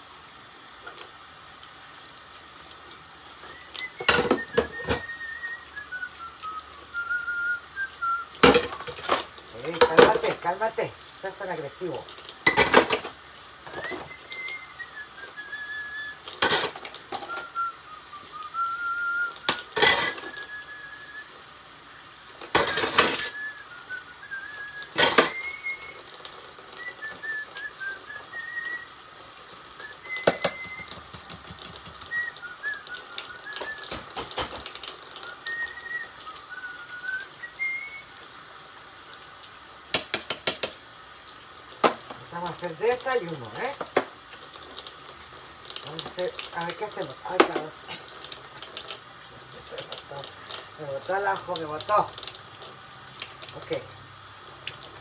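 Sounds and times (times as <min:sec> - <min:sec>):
person whistling a tune: 0:03.4 - 0:08.8, 0:13.7 - 0:16.3, 0:17.2 - 0:21.4, 0:22.6 - 0:26.1, 0:26.8 - 0:29.0, 0:29.8 - 0:31.1, 0:31.8 - 0:34.4, 0:35.1 - 0:38.2
dishes and pots clattering: 0:04.0 - 0:05.1, 0:08.4 - 0:10.3, 0:12.4 - 0:14.0, 0:16.4 - 0:17.4, 0:19.5 - 0:20.4, 0:22.5 - 0:23.4, 0:24.9 - 0:25.5, 0:30.2 - 0:32.0.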